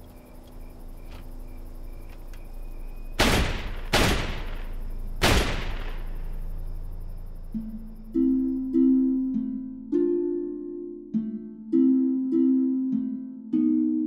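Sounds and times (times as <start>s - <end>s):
gunshots with echo: 3.2s - 6.3s.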